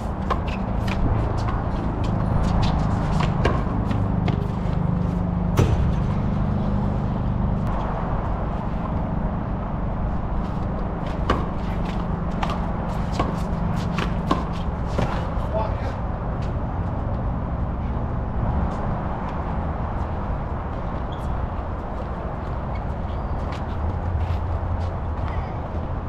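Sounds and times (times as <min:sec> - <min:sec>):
handball slaps and knocks: 0:00.2 - 0:04.6, 0:11.1 - 0:15.3.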